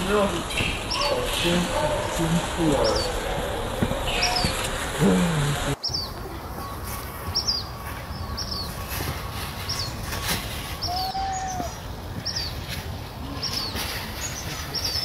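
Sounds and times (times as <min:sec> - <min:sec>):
small bird chirping: 0:04.1 - 0:04.7, 0:05.7 - 0:12.7.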